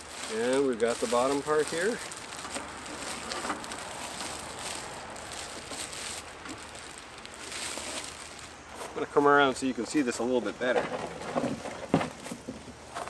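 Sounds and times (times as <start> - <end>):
plastic wrapping rustling: 0.0 - 13.0.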